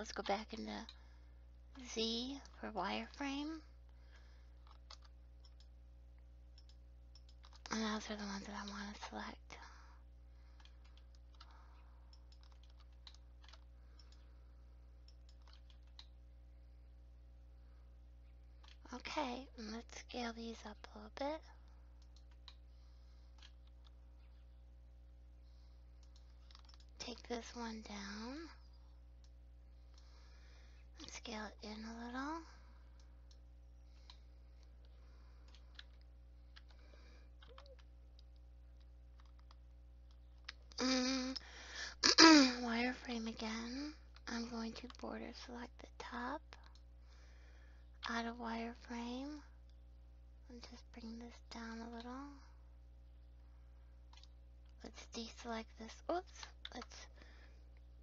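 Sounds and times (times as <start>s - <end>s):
low electrical hum: 0.0s - 58.0s
computer mouse and keyboard clicks: 4.6s - 5.8s, 6.5s - 9.1s, 10.5s - 14.3s, 15.0s - 16.2s, 18.5s - 18.9s, 22.0s - 22.6s, 23.2s - 24.5s, 26.0s - 27.4s, 33.0s - 40.8s, 44.1s - 45.0s, 46.5s - 46.9s, 56.2s - 57.0s.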